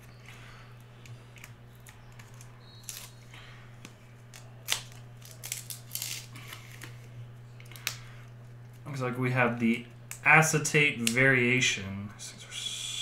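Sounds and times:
packaging being torn open: 0:01.9 - 0:03.2, 0:04.2 - 0:07.0.

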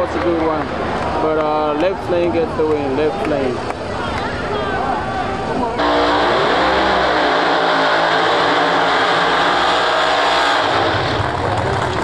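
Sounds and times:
car engines revving high: 0:05.7 - 0:12.0.

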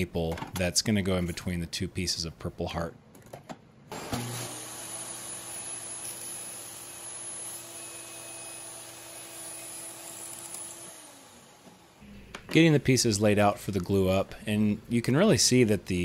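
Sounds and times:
table saw motor running: 0:03.9 - 0:12.0
saw blade ripping wood: 0:04.0 - 0:11.2.

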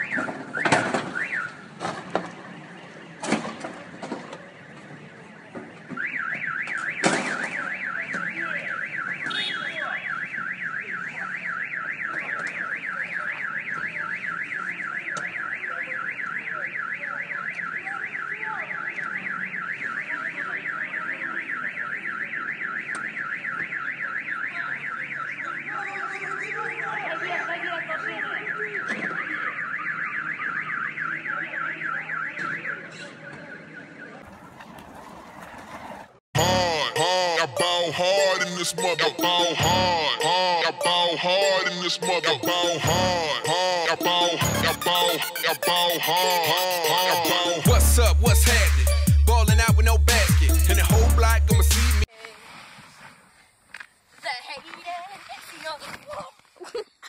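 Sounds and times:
car alarm warbling: 0:00.0 - 0:01.7, 0:05.9 - 0:52.1.

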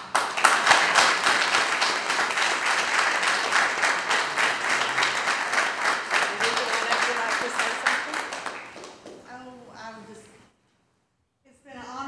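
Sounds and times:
people clapping: 0:00.0 - 0:09.4.

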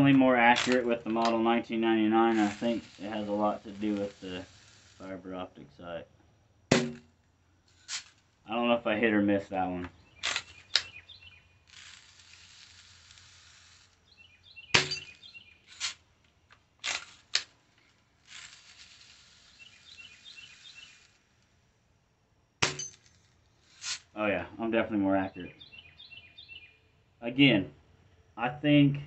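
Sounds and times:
air gun cocking and firing: 0:00.0 - 0:01.4, 0:06.7 - 0:07.1, 0:10.2 - 0:11.0, 0:14.7 - 0:16.1, 0:16.8 - 0:17.6
steady hiss: 0:00.0 - 0:11.0, 0:11.6 - 0:16.2, 0:16.8 - 0:22.0, 0:22.6 - 0:25.2
faint bird chirps: 0:09.9 - 0:11.6, 0:14.0 - 0:15.7, 0:19.5 - 0:21.2, 0:25.2 - 0:27.0.

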